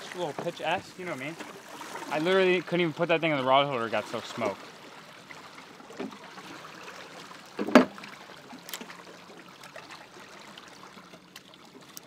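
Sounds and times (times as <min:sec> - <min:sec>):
water lapping against boat hull: 0:00.0 - 0:12.0
loud knock or splash: 0:07.6 - 0:08.0.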